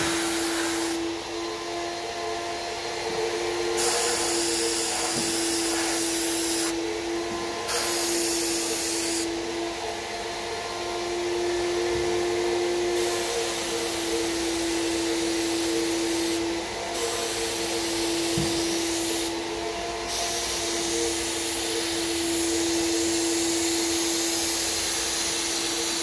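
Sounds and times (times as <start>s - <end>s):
spray gun hissing: 0.0s - 1.2s, 3.7s - 6.8s, 7.7s - 9.3s, 13.0s - 19.4s
turbine motor whine: 0.0s - 26.0s.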